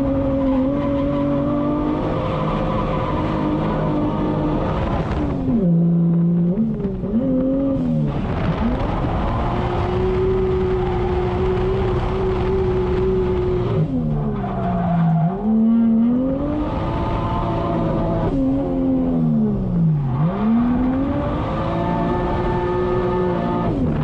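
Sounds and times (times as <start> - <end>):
car engine revving: 0.0 - 24.0
tires skidding: 8.0 - 18.0.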